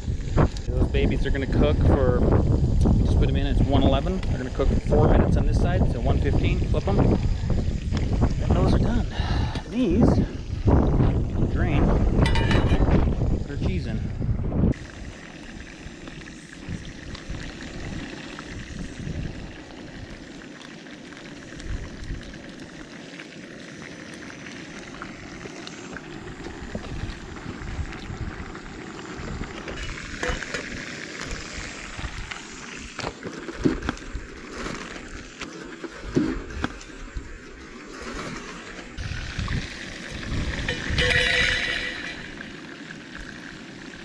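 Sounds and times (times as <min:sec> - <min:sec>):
fish sizzling in a pan: 0:14.7 - 0:44.0.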